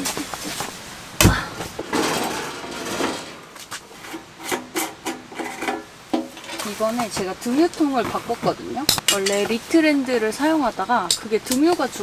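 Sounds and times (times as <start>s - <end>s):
heavy thump: 1.2s - 3.4s
rubbing of camping gear: 6.4s - 8.8s.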